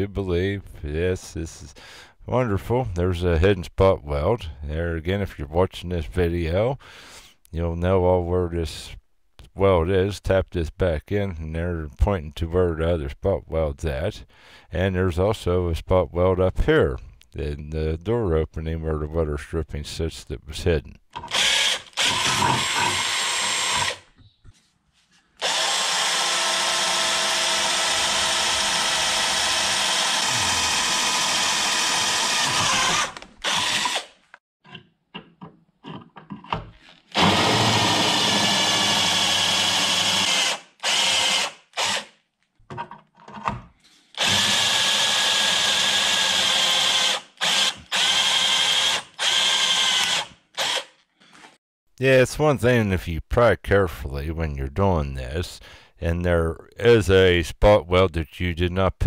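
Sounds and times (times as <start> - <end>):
power drill boring sheet metal: 21.2 - 24.1, 25.4 - 34.2, 37.1 - 42.1, 44.1 - 51.6.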